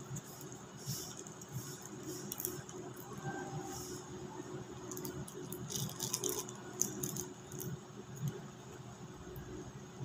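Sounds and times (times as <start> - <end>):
plastic sachet crinkling: 0.1 - 3.2, 4.8 - 7.8.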